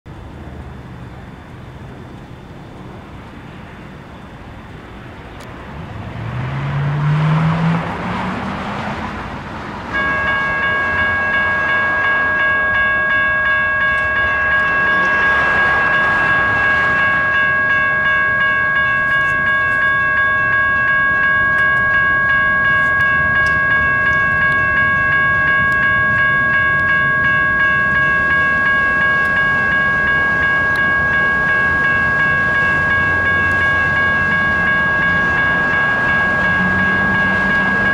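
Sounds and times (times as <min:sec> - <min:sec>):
car passing: 0:02.9 - 0:37.9
railroad crossing bell ringing: 0:09.8 - 0:37.9.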